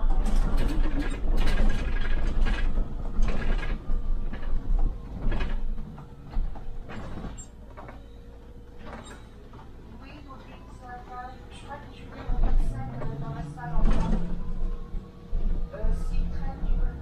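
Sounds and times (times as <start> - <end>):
bodywork rattles and clicks: 0.0 - 8.1
bus interior rumble: 0.0 - 17.0.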